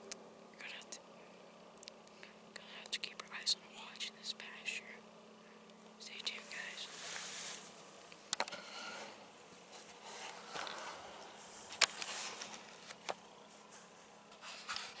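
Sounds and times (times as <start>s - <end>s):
faint steady buzz: 0.0s - 15.0s
camera clicks and rustles: 11.7s - 13.2s.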